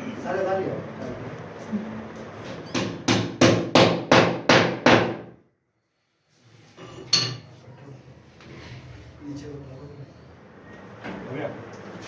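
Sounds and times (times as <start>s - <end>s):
hammer striking wood: 2.7s - 5.3s.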